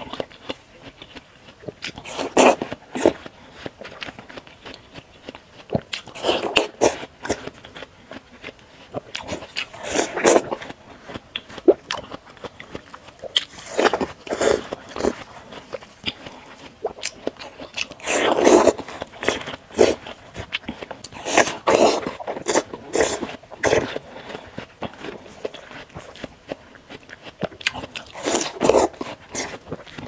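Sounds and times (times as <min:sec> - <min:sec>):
crunching watermelon: 0:00.0 - 0:30.0.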